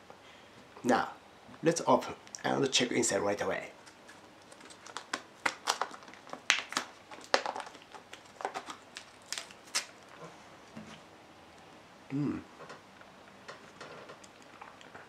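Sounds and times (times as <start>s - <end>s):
plastic lid crackling: 4.1s - 9.9s.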